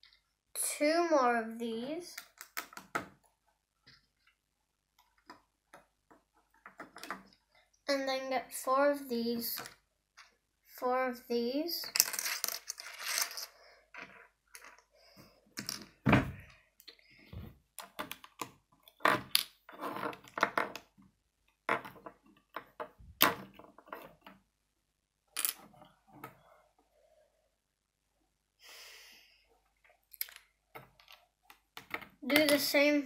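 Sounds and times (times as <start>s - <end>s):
plastic bricks clicking on wooden table: 2.2s - 3.2s, 17.8s - 21.0s.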